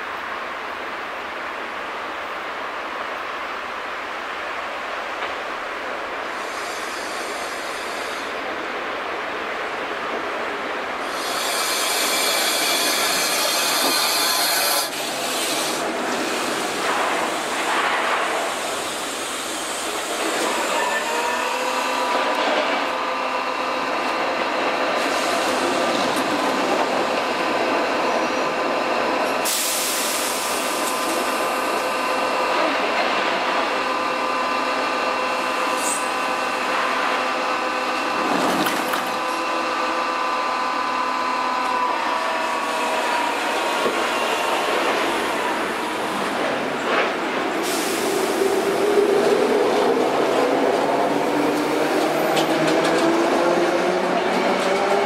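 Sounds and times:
train equipment hum: 0.1s - 55.0s
loud air hiss: 6.2s - 8.6s, 11.0s - 22.3s, 25.0s - 25.9s, 29.4s - 32.4s, 34.8s - 36.7s, 47.5s - 49.0s
electric train stopping: 6.3s - 8.4s, 11.0s - 55.0s.

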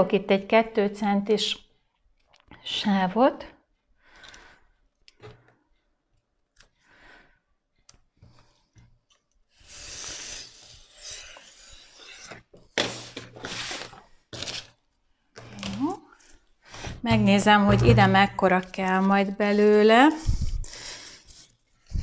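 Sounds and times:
knife scraping along ruler: 11.3s - 12.4s
vinyl film and ruler rustling: 12.2s - 14.8s.

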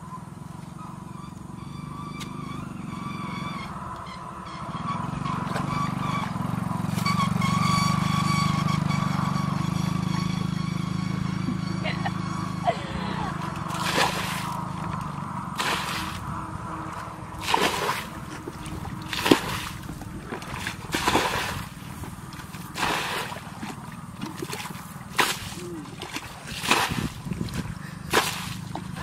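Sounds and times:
water splashing: 13.2s - 29.0s
bucket scooping and pouring water: 13.6s - 16.2s, 17.4s - 21.8s, 22.4s - 29.0s.

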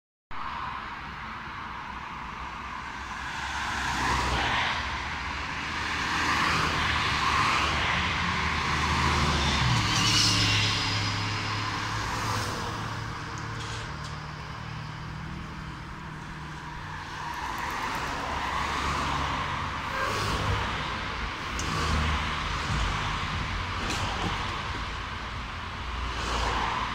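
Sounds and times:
cars passing by: 0.3s - 26.9s
trolleybus drawing up: 12.5s - 16.6s.

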